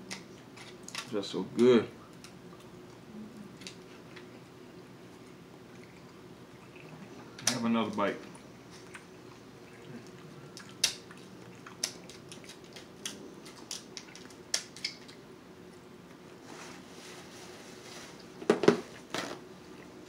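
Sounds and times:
crab shells cracking: 0.1 - 1.2, 10.6 - 11.1, 11.7 - 15.2.

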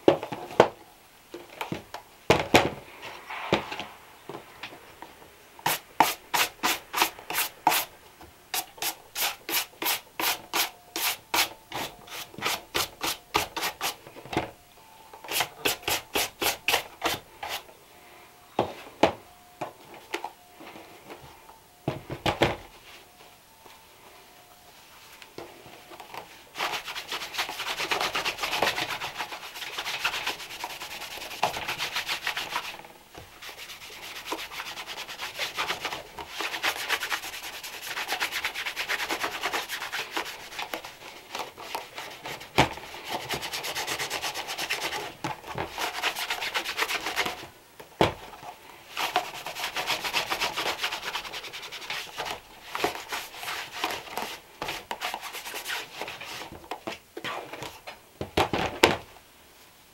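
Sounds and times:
shoe brush scrubbing leather: 26.6 - 32.8, 33.4 - 41.0, 41.6 - 45.1, 45.7 - 47.4, 49.0 - 56.5.

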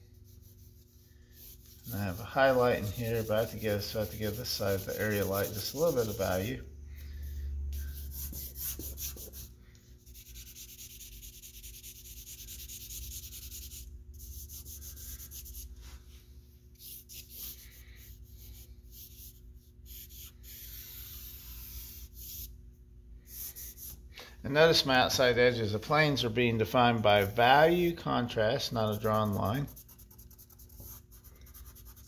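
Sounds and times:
charcoal scratching on paper: 0.0 - 6.6, 7.8 - 15.7, 16.8 - 22.5, 28.7 - 32.0.

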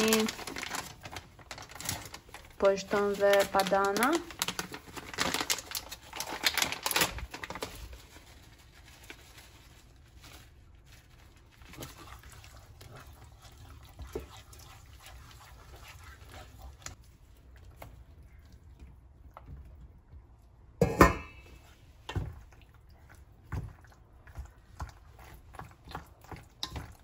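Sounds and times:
plastic bag crinkling: 0.0 - 12.3
spatula stirring sauce in pot: 11.6 - 18.0, 21.5 - 27.0.

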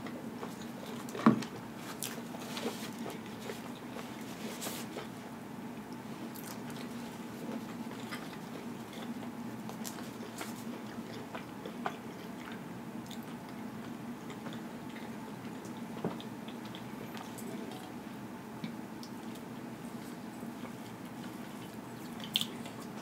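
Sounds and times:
person chewing: 6.0 - 17.9, 20.0 - 23.0.

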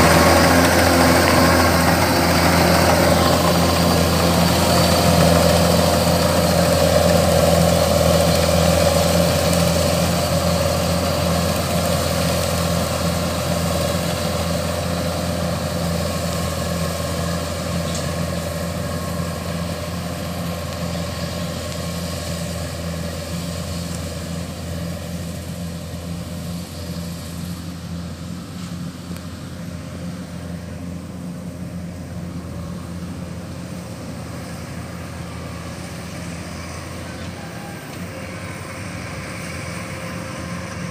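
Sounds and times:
combine harvester engine drone: 0.0 - 40.9.

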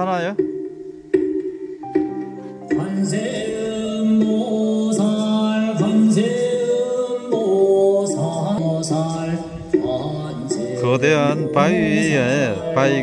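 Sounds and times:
person singing a slow chant: 2.7 - 13.0.

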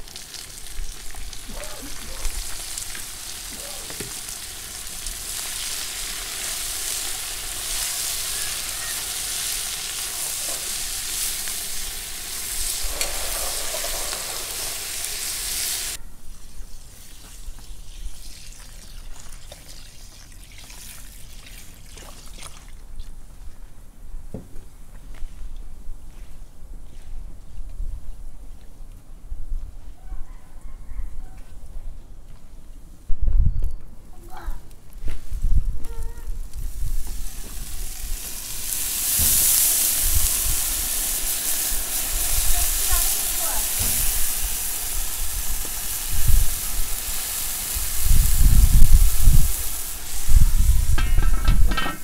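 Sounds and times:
food sizzling in hot oil: 0.0 - 22.3, 35.3 - 52.0.

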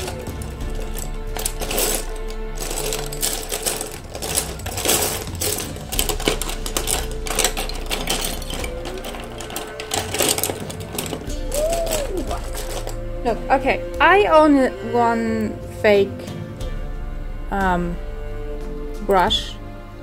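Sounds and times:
packaging rustling and clicking: 0.0 - 13.0
background music: 0.0 - 20.0.

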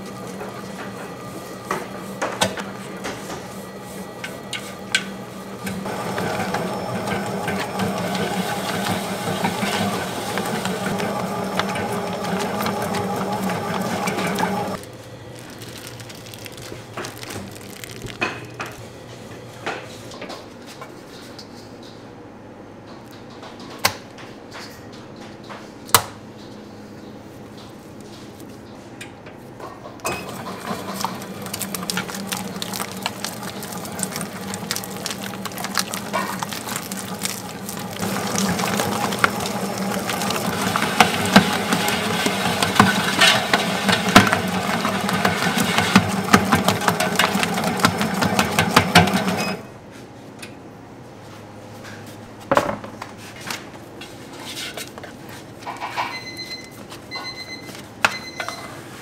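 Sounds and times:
machine humming and rattling: 0.0 - 20.6, 29.6 - 49.8.

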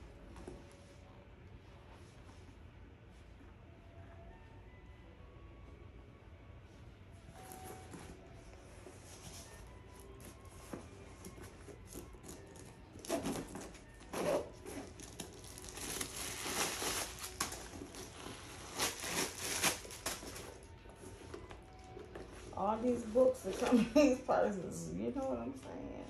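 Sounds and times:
paper crinkling and rustling: 7.3 - 24.2.

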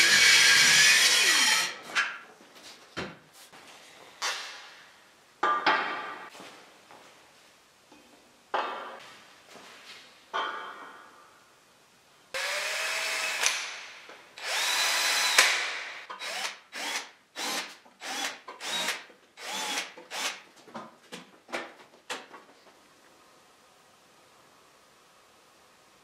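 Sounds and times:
cordless drill drilling into wood: 12.4 - 13.5, 14.4 - 15.5, 16.2 - 20.4.

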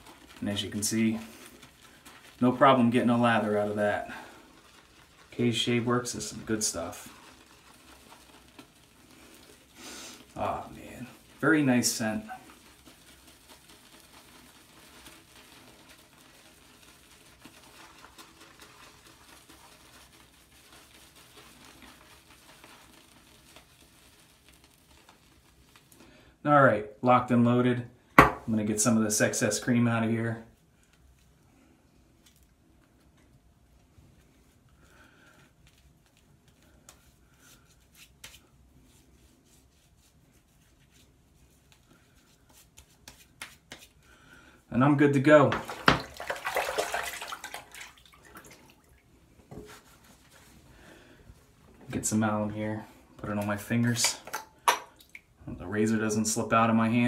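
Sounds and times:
shaving brush lathering soap: 0.0 - 26.4, 28.8 - 44.2, 44.8 - 57.0.

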